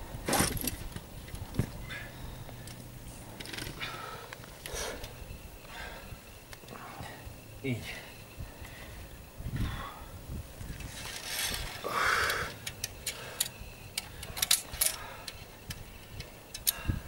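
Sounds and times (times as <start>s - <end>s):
metal climbing gear clinking: 0.3s - 9.3s, 10.7s - 17.0s
rustling scrape: 10.7s - 11.8s.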